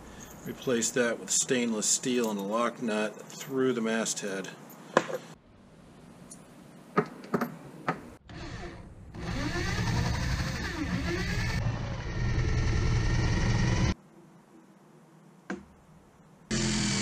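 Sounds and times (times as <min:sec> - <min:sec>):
electric drill boring wood: 0:08.3 - 0:14.0, 0:16.5 - 0:17.0.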